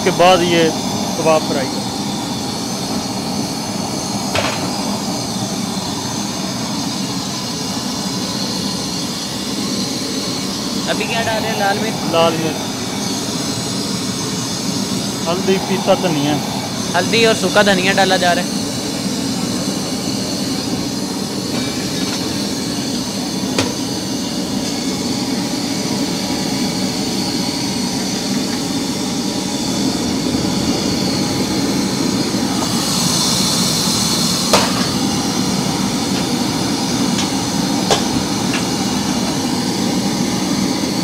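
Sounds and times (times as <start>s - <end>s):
gas flames roaring: 0.0s - 41.0s
loud hiss: 10.6s - 22.8s.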